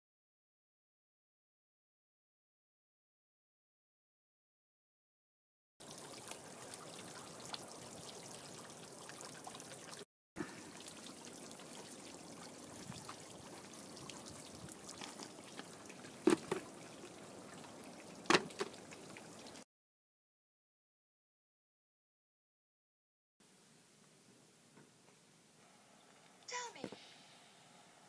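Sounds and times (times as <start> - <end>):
steady outdoor hiss: 5.8 - 19.6, 23.4 - 28.0
book dropped into metal fire pit: 16.2 - 16.7, 18.3 - 18.8.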